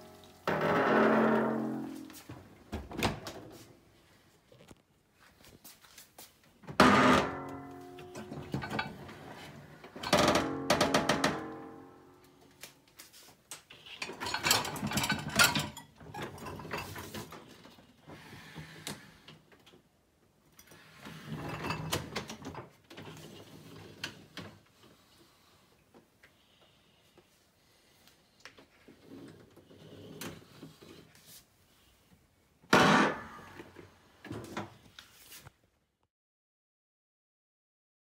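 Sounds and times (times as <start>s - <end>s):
dishwasher racks rolling and rattling: 6.7s - 11.8s, 13.9s - 17.7s, 21.0s - 24.3s
dishes and cutlery clinking: 14.0s - 17.3s.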